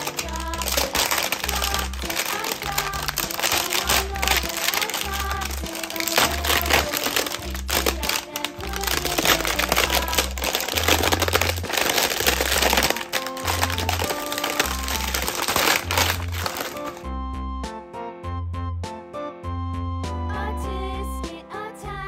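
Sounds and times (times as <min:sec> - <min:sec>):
plastic film crinkling: 0:00.0 - 0:17.0
background music with steady beat: 0:00.0 - 0:22.0.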